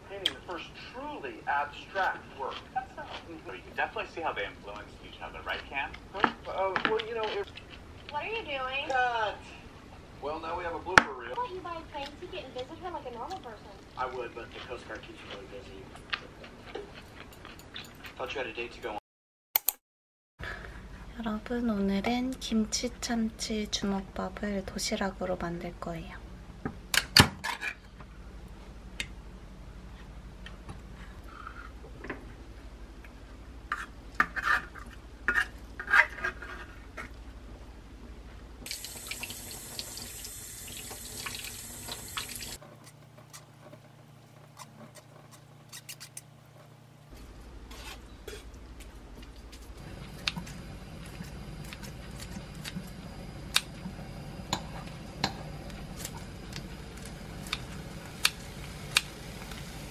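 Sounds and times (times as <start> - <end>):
tap water running: 38.6 - 42.6.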